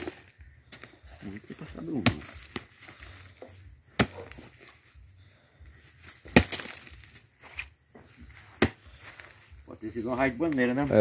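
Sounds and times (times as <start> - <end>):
hoe chopping into soil: 1.8 - 4.7, 6.0 - 7.7, 8.3 - 9.3.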